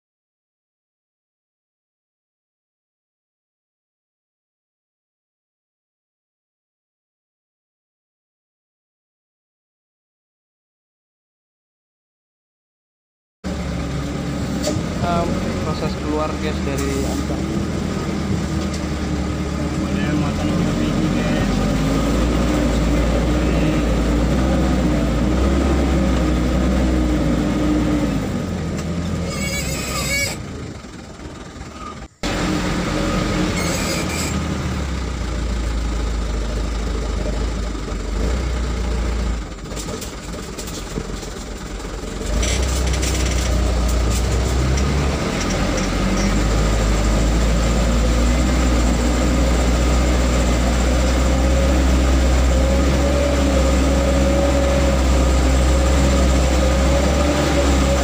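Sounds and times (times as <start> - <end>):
vehicle engine rumbling: 13.4 - 58.0
rattling: 39.5 - 47.0.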